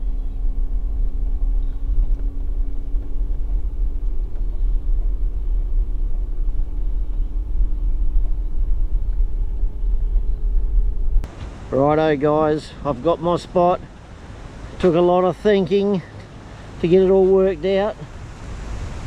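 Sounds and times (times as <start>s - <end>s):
car driving on dirt road: 0.0s - 11.6s.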